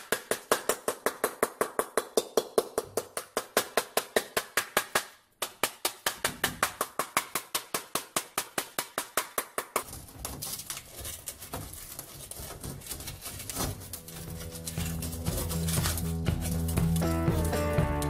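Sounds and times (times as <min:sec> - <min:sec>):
metal tool scraping rust: 0:09.8 - 0:18.0.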